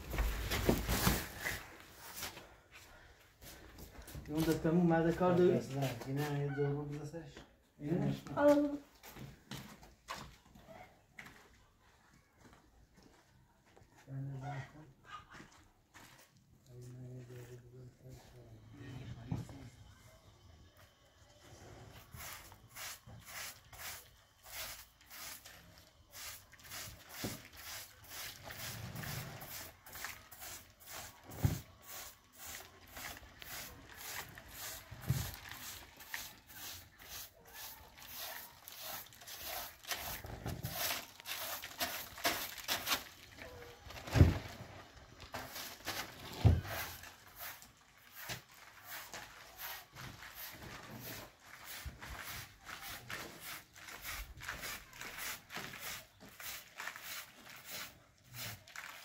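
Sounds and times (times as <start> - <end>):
broom sweeping carpet: 0.1 - 2.4, 22.0 - 43.1, 45.4 - 59.0.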